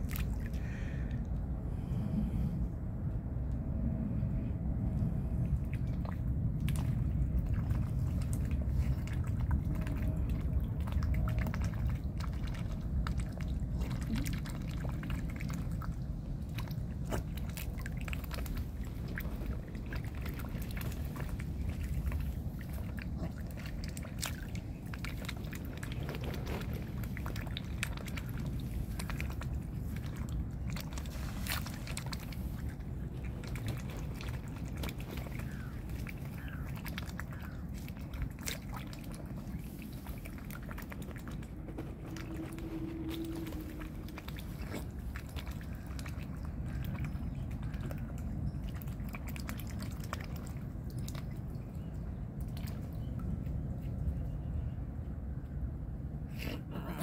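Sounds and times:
swan bill clicks and slurps: 0.0s - 1.5s, 4.8s - 54.4s
low rumble: 0.0s - 57.0s.

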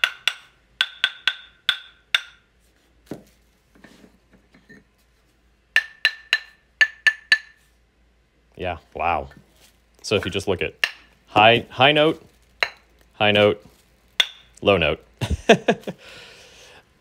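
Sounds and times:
wood blanks tapped ringing: 0.0s - 2.5s, 5.8s - 7.6s, 14.2s - 14.6s.

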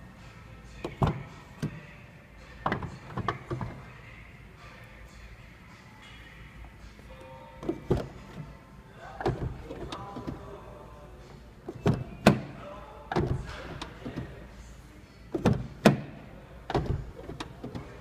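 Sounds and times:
car door latch clunks: 11.7s - 14.3s, 15.3s - 17.9s.

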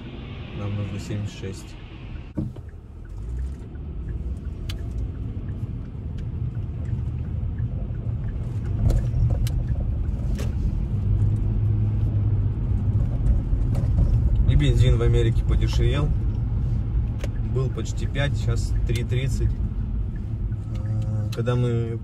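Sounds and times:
engine and tyre rumble: 0.0s - 22.0s
light ticks: 2.6s - 10.6s, 15.3s - 22.0s.

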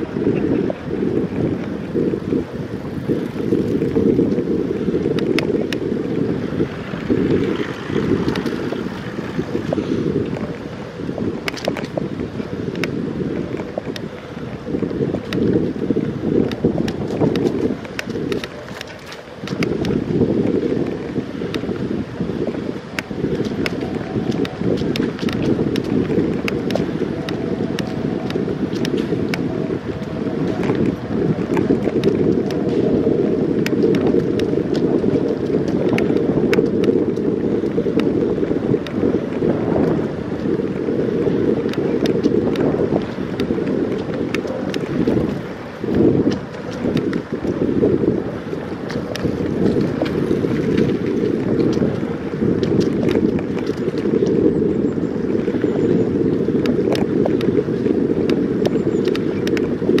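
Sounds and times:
wind buffeting microphone: 0.0s - 60.0s
light clicks and ticks: 11.4s - 12.0s, 12.7s - 15.6s, 16.4s - 20.0s, 22.9s - 29.5s, 58.3s - 60.0s.

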